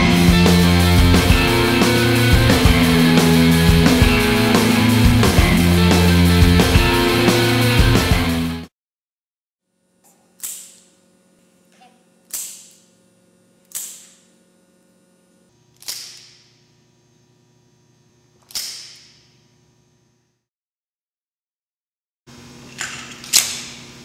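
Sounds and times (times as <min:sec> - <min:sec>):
electrical hum: 0:00.0 - 0:08.4
baton snapping open with metallic clack: 0:10.4 - 0:10.9, 0:12.3 - 0:12.8, 0:13.7 - 0:14.2, 0:15.8 - 0:16.6, 0:18.4 - 0:19.3, 0:22.8 - 0:23.8.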